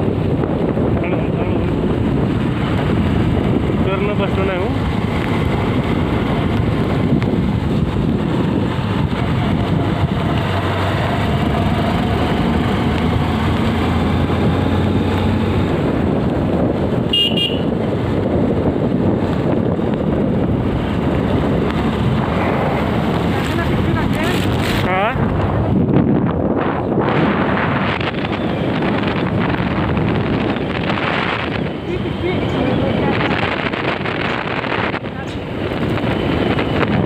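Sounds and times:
vehicle driving on wet road: 0.0s - 37.0s
car horn toot: 17.1s - 17.7s.

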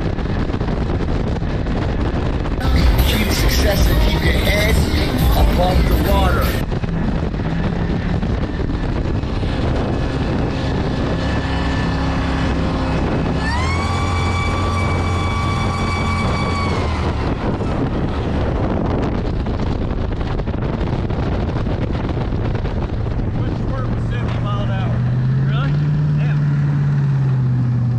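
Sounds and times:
boat engine revving: 0.0s - 27.9s.

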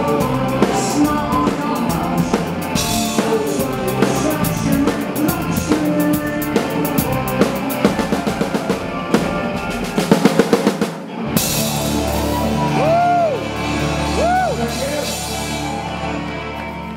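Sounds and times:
rock band playing live: 0.0s - 16.9s
drum strokes: 6.8s - 12.4s.

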